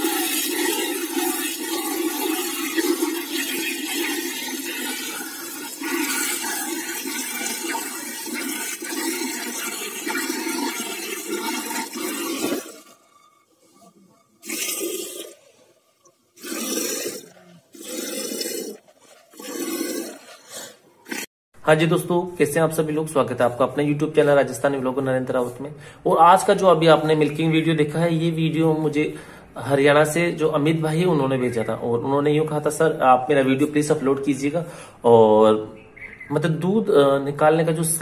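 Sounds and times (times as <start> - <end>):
milk squirting into a bucket: 0.0 - 13.1, 14.4 - 15.5, 16.4 - 20.4.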